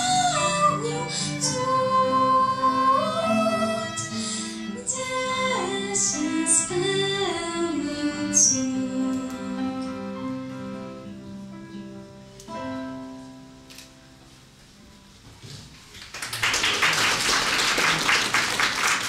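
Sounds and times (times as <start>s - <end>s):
applause: 15.9s - 19.0s.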